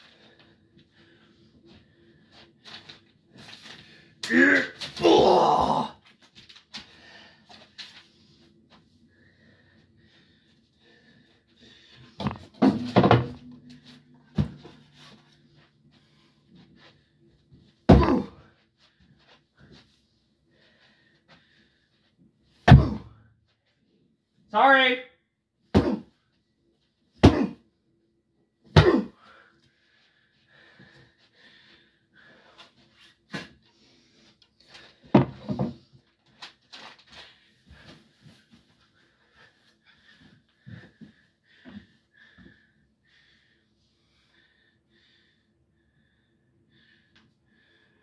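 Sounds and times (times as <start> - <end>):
thuds and knocks: 35.1 - 35.8.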